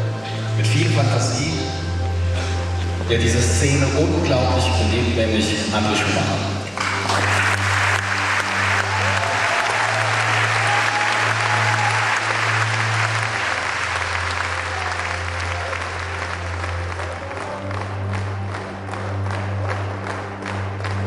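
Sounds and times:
music with held bass notes: 0.0s - 6.7s
audience applauding: 6.6s - 21.0s.

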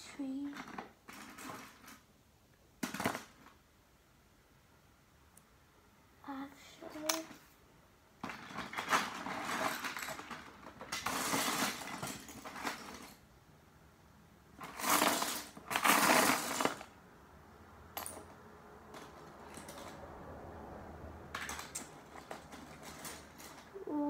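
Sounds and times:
plastic bricks clattering in a box: 0.4s - 2.0s, 2.8s - 3.6s, 8.2s - 13.2s, 14.6s - 17.0s, 21.3s - 23.7s.

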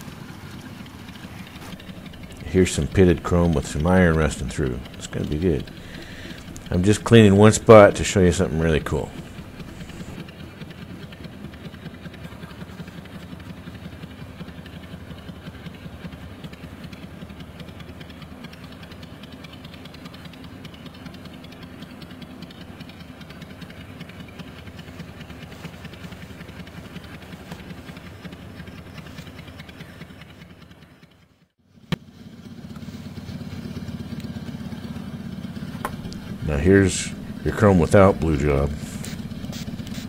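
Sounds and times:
cloth scrubbing chrome pipe: 24.6s - 29.4s, 35.5s - 40.0s.

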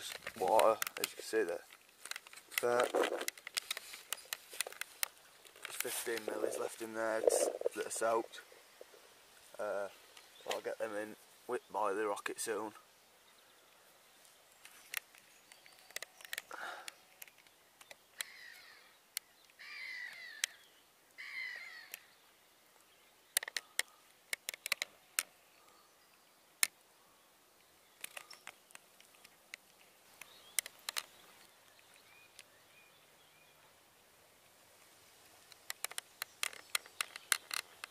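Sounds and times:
sharp clicks and taps: 0.0s - 8.1s, 14.6s - 18.3s, 23.4s - 25.3s, 35.5s - 37.9s
faint outdoor background noise: 0.0s - 37.9s
bird calling: 6.1s - 10.8s, 14.6s - 26.4s.

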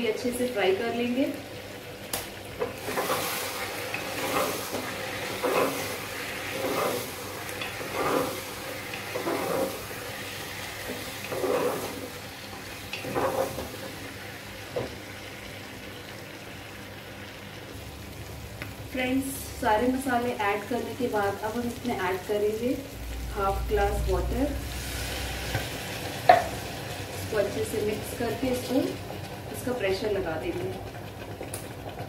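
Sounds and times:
food sizzling in a pot: 0.0s - 32.0s
wooden spatula scraping pot: 2.6s - 10.0s, 10.6s - 12.2s, 12.9s - 13.8s.

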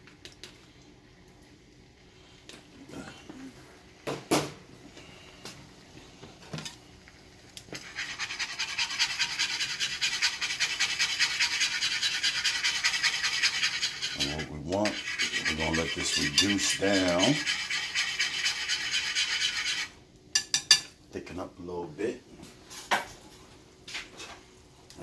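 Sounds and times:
whisk scraping a pan: 7.7s - 20.0s.

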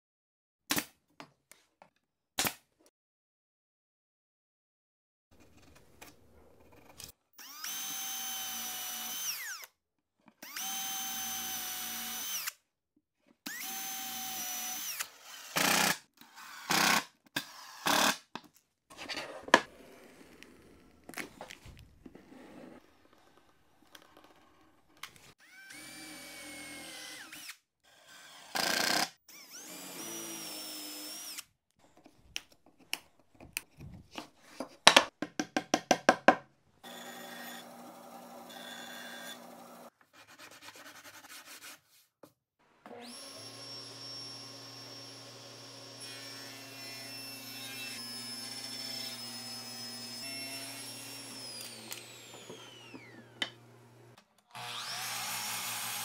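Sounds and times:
power drill driving screws: 7.4s - 9.7s, 10.4s - 12.6s, 13.5s - 18.2s, 25.4s - 31.5s, 43.0s - 53.5s, 54.5s - 56.0s.

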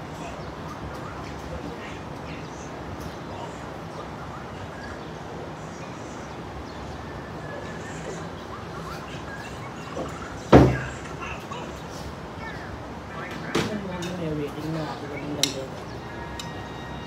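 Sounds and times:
distant city traffic hum: 0.0s - 17.0s
loud thump: 10.5s - 10.9s.

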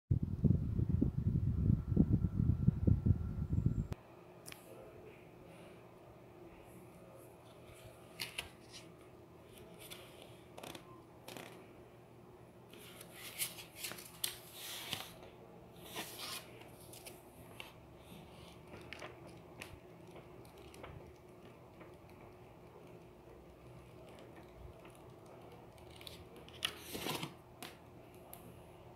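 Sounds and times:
book pages leafed through: 7.5s - 11.6s, 12.7s - 22.0s, 24.0s - 27.8s.

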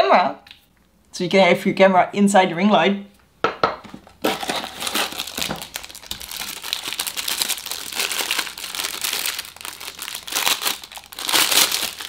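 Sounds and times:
plastic wrapping crinkling: 4.1s - 12.0s.

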